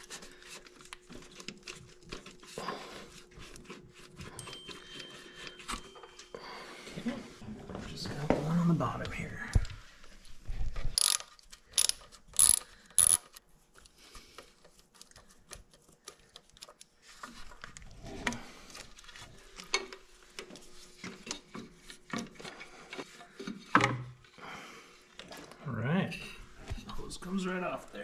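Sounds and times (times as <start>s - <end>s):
ratchet wrench clicking: 11.0s - 13.4s.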